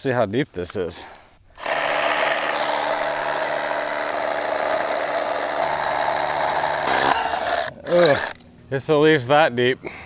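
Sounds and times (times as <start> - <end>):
cordless drill boring into concrete: 1.6 - 8.4.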